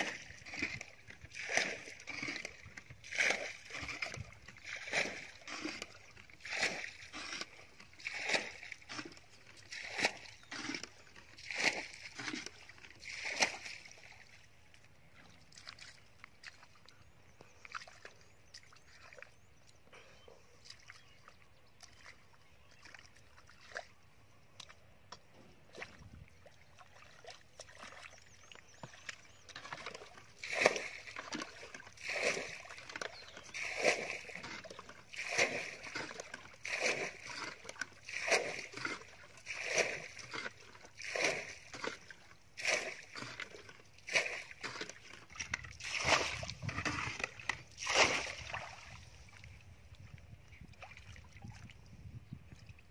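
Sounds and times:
water splashing from bucket: 0.0 - 14.4, 26.7 - 49.4.

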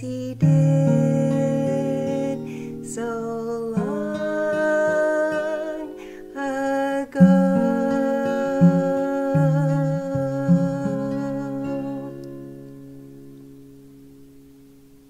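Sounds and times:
woman singing gospel song: 0.0 - 12.2
singer breathing: 2.4 - 2.8, 5.9 - 6.4.

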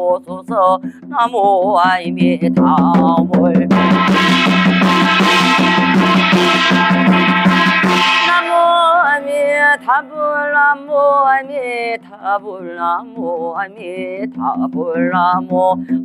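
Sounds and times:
woman chanting: 0.0 - 3.9, 8.2 - 16.0
quick drum strokes: 0.7 - 10.0
steady held tone: 3.6 - 10.6.

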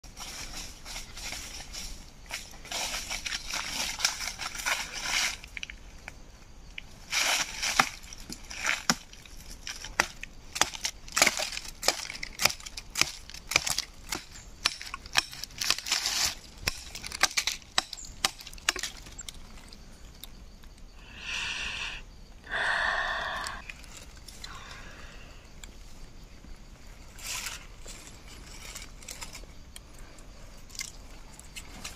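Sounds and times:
dry leaves crunching underfoot: 0.0 - 5.6, 6.9 - 10.0.

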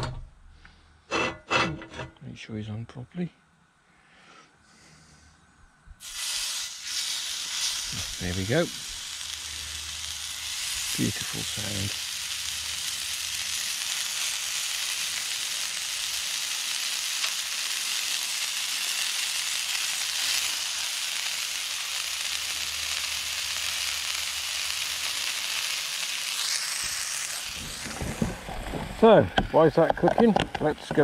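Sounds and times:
meat sizzling in hot oil: 6.0 - 29.2.

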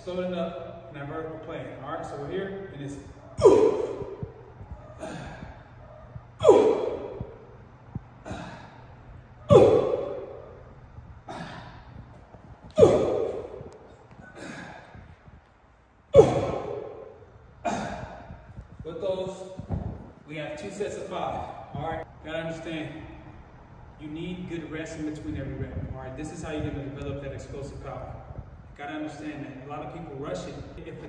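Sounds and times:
man exhaling forcefully: 3.4 - 4.3, 4.9 - 5.8, 6.4 - 7.5, 8.2 - 10.5, 11.3 - 12.0, 12.7 - 15.2, 16.2 - 18.6.

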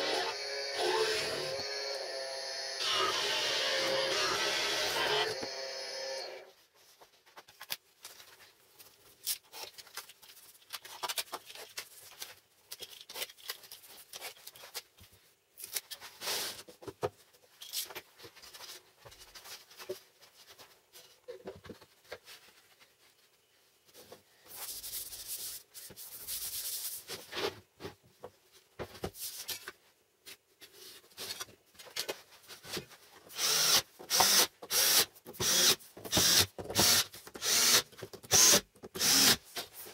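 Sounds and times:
drill driving screws: 0.0 - 6.4, 33.3 - 39.4.

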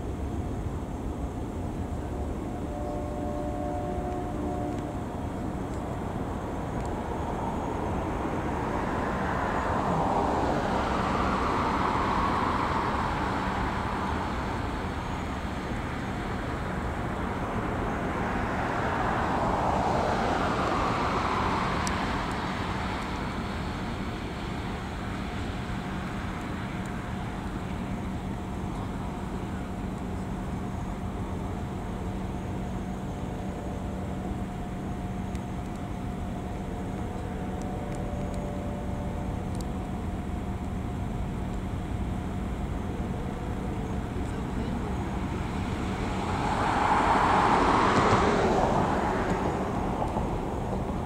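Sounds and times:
steady background hum: 0.0 - 51.0
vehicles passing: 0.0 - 51.0.

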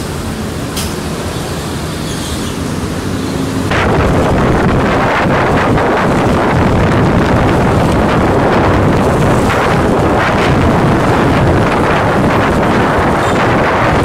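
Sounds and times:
road and traffic noise: 0.0 - 14.0
wind buffeting microphone: 2.8 - 14.0.

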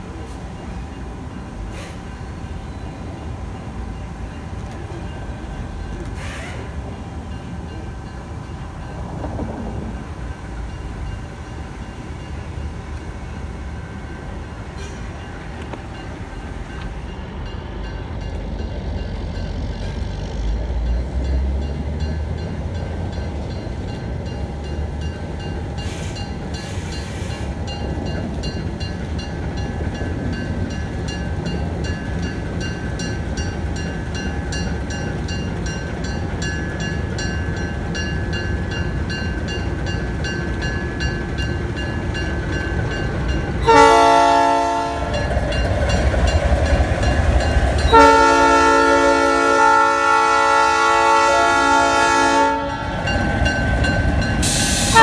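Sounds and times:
diesel locomotive engine rumbling: 0.0 - 55.0
locomotive horn blast: 43.6 - 45.2, 47.9 - 53.1, 54.4 - 55.0.

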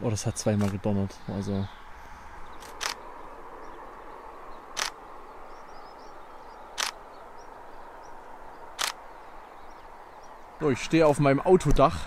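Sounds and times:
camera shutter clicks: 2.6 - 3.0, 4.8 - 5.0, 6.8 - 7.0, 8.8 - 9.0.

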